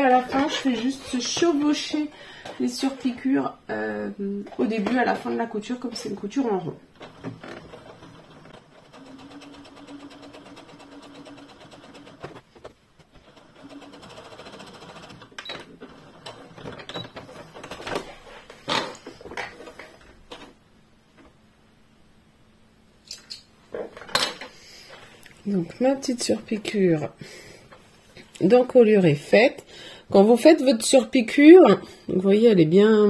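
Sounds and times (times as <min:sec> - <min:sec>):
sewing machine sewing: 0:06.3 - 0:20.5.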